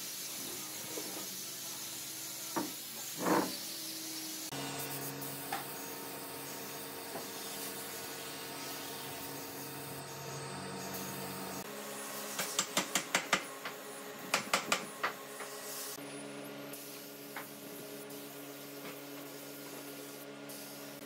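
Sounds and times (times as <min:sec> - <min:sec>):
short sharp spray bursts: 0:00.0 - 0:09.9, 0:16.8 - 0:21.0
spray gun hissing: 0:00.0 - 0:12.6, 0:16.8 - 0:21.0.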